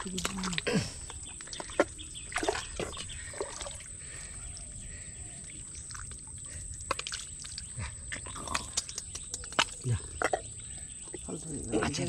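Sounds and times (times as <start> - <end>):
hands squelching in wet mud: 0.0 - 11.2.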